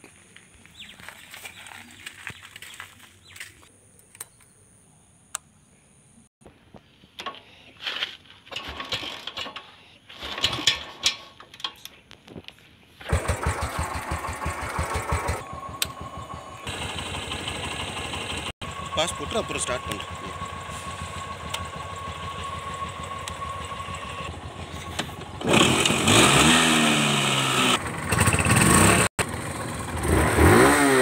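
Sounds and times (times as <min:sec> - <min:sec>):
motorcycle kick-start kicks: 0:07.2 - 0:11.9, 0:13.0 - 0:17.3, 0:20.1 - 0:27.1, 0:27.8 - 0:29.4
motorcycle engine thumping: 0:20.3 - 0:27.0.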